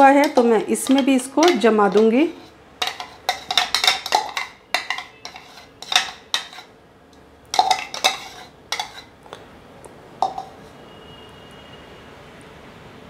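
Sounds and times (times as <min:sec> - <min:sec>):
glass jar clinking on bowls: 0:00.1 - 0:06.7, 0:07.6 - 0:09.1, 0:10.2 - 0:10.6.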